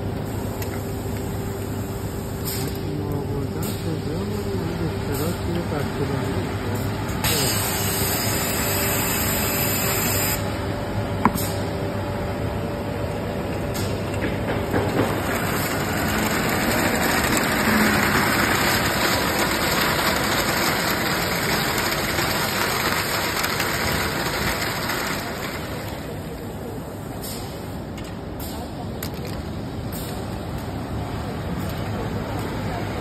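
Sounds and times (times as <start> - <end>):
rewinder machine running: 0.0 - 11.4, 12.2 - 26.9.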